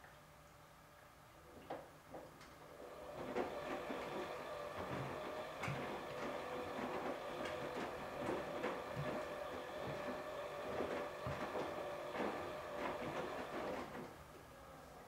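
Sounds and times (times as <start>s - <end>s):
washing machine motor whine: 2.6s - 14.3s.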